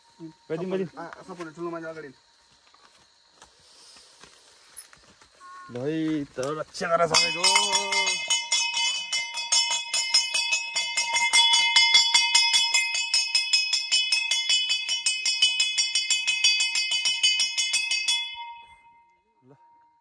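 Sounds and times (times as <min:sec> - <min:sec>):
brass bell ringing rapidly: 0:07.1 - 0:19.0.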